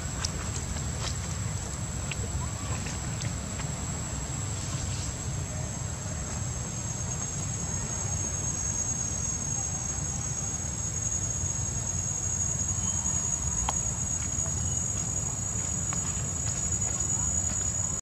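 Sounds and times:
low steady rumble: 0:00.0 - 0:18.0
high-pitched insect drone: 0:04.0 - 0:18.0.

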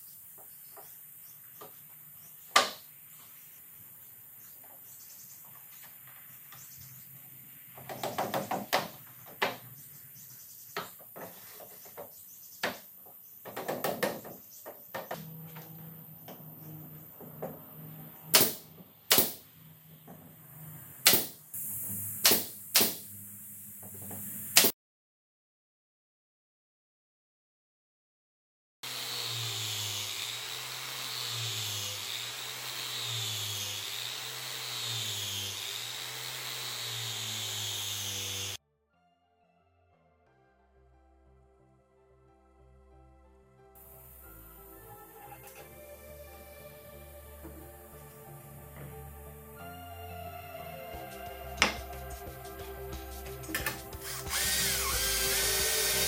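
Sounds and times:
wooden knocks and taps: 0:07.8 - 0:09.7, 0:10.8 - 0:15.3
angle grinder brushing wood: 0:11.2 - 0:12.0, 0:28.8 - 0:38.6, 0:50.8 - 0:56.0.

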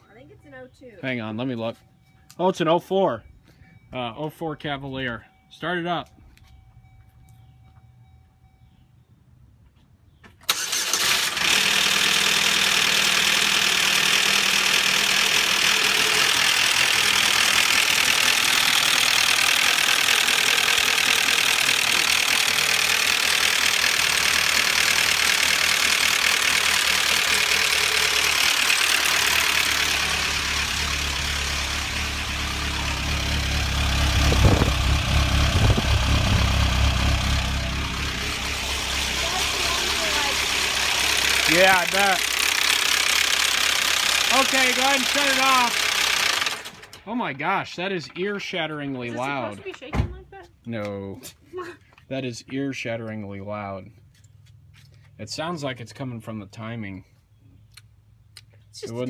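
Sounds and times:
car engine starting: 0:10.4 - 0:49.5
loud metallic engine clatter: 0:10.5 - 0:47.4
engine knocks: 0:13.1 - 0:47.2
deep exhaust note: 0:13.4 - 0:45.8.

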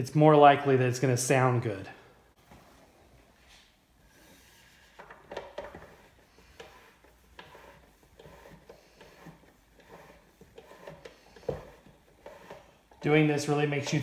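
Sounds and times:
record rubbing against pads: 0:05.7 - 0:13.2.

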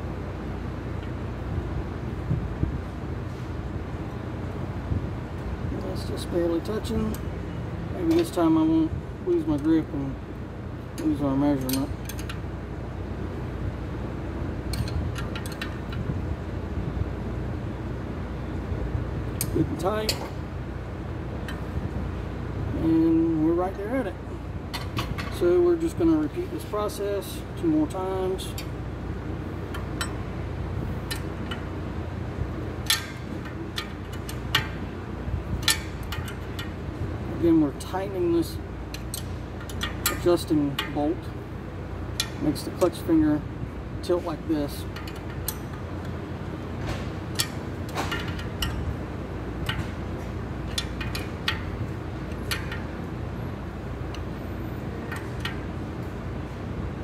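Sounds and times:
steady low hum: 0:00.0 - 0:57.0
wrench clinking on metal: 0:11.0 - 0:12.4, 0:14.7 - 0:16.0, 0:29.7 - 0:30.3, 0:32.8 - 0:34.9, 0:35.6 - 0:36.8, 0:38.9 - 0:41.2, 0:42.1 - 0:43.1, 0:44.6 - 0:45.8, 0:47.3 - 0:48.9, 0:49.6 - 0:53.0, 0:54.1 - 0:55.7.

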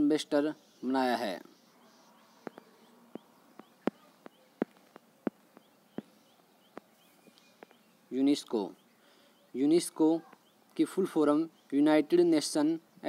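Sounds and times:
faint high chirps: 0:00.4 - 0:11.8
sharp clicks: 0:01.6 - 0:07.8.

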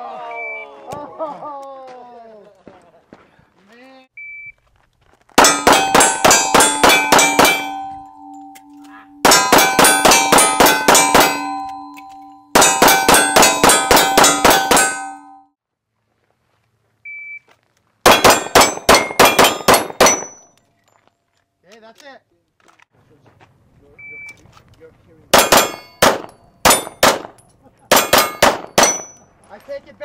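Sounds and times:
pistol shots: 0:05.4 - 0:08.0, 0:09.2 - 0:11.8, 0:12.6 - 0:15.2, 0:18.1 - 0:20.4, 0:25.3 - 0:29.2
steel targets ringing: 0:05.4 - 0:15.5, 0:18.1 - 0:20.5, 0:25.4 - 0:29.3.

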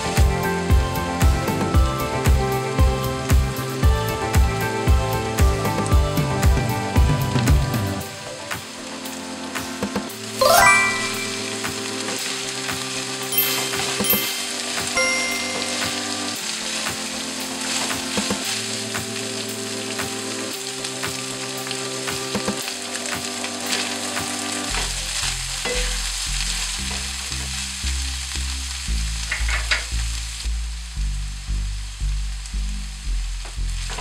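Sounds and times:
meat sizzling in a frying pan: 0:00.0 - 0:10.4, 0:11.0 - 0:34.0
background music: 0:00.0 - 0:25.0
pulsing bass beat: 0:25.0 - 0:34.0.

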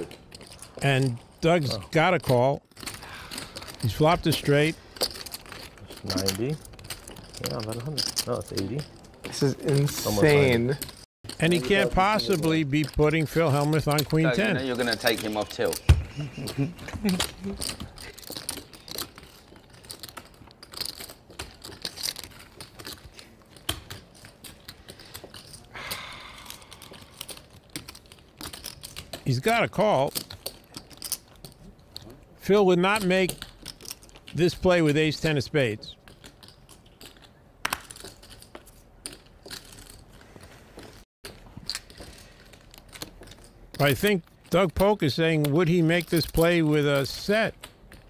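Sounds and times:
poker chips clicking together: 0:02.8 - 0:32.1.

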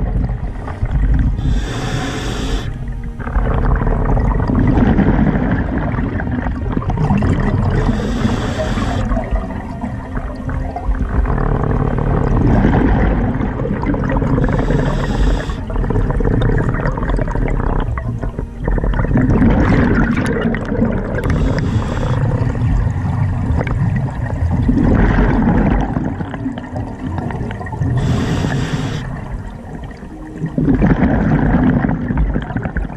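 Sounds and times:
bubbling exhalations: 0:00.0 - 0:32.9
regulator hissing inhalations: 0:01.4 - 0:02.8, 0:07.8 - 0:09.2, 0:14.4 - 0:15.6, 0:21.2 - 0:22.2, 0:28.0 - 0:29.1.

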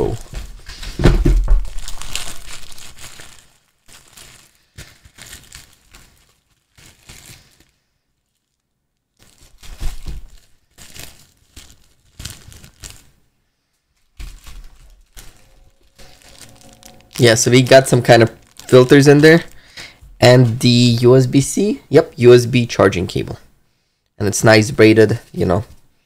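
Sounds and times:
packaging crinkling and rustling: 0:00.0 - 0:13.3, 0:13.9 - 0:20.0.

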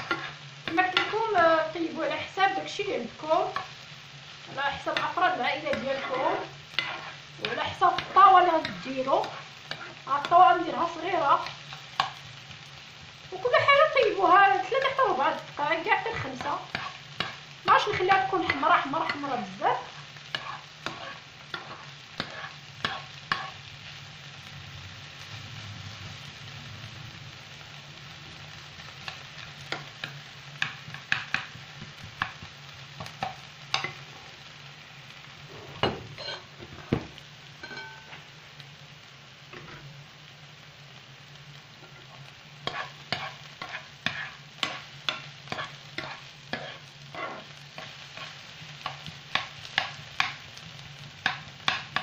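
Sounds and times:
metal spoon scraping pan: 0:00.0 - 0:01.4, 0:04.7 - 0:10.4, 0:16.1 - 0:23.6, 0:35.5 - 0:36.9, 0:41.8 - 0:50.4
vegetables sizzling in oil: 0:00.0 - 0:52.0.

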